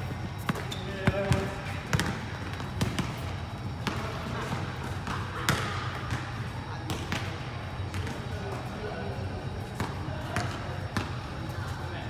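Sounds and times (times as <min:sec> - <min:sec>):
basketball bouncing on court: 0:00.3 - 0:08.4, 0:09.8 - 0:11.3.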